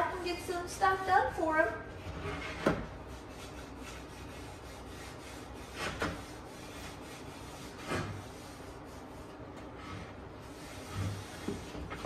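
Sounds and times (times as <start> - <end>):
cloth rubbing on wood: 0.8 - 12.0.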